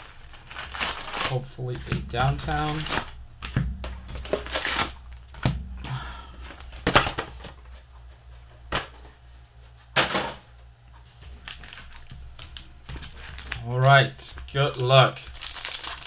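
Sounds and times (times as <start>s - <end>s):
packaging crinkling: 0.0s - 5.6s, 11.3s - 16.0s.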